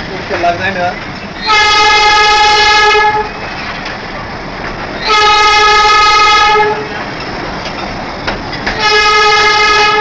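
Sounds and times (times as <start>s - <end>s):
train rumbling: 0.0s - 10.0s
train horn blasts: 1.4s - 3.4s, 5.0s - 7.0s, 8.8s - 10.0s.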